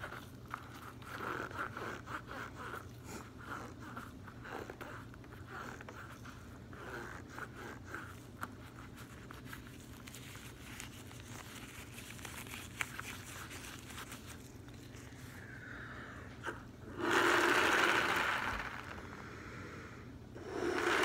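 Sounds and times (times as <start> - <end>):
balloon rubbery rustling: 0.0 - 15.5.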